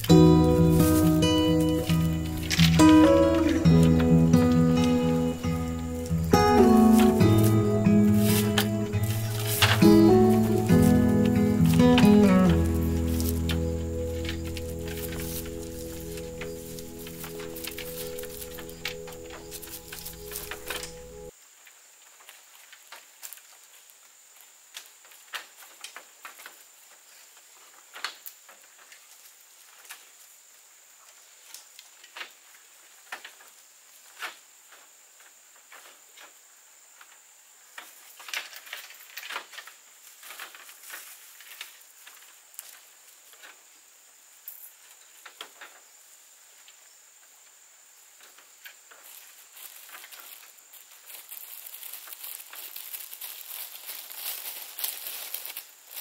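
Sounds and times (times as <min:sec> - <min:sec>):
rustling: 0:00.0 - 0:21.3, 0:37.8 - 0:43.7, 0:48.2 - 0:56.0.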